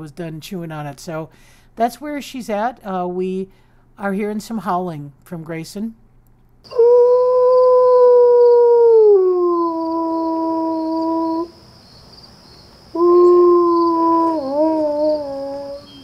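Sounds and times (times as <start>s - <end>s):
wolf howling: 6.7s - 11.5s, 13.0s - 16.0s.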